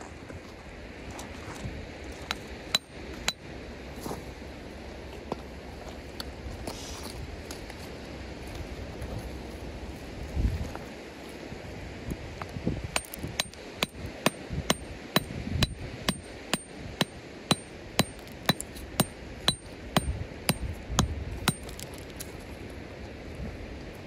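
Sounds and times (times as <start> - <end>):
hammer tapping rock: 2.3 - 3.4, 12.9 - 22.0.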